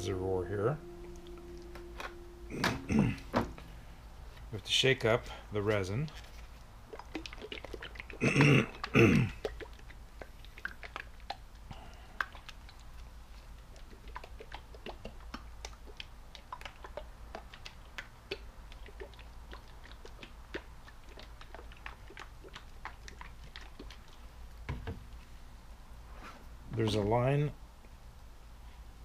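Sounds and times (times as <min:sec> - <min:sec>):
plastic bottle of liquid shaken: 0:06.0 - 0:11.2.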